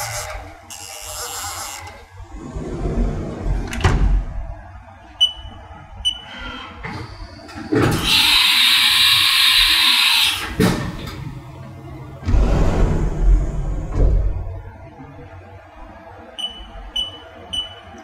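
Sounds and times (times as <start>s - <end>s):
sliding door rolling shut: 2.4s - 4.3s, 12.2s - 14.6s
keypad beeps: 5.2s - 6.4s, 16.4s - 18.0s.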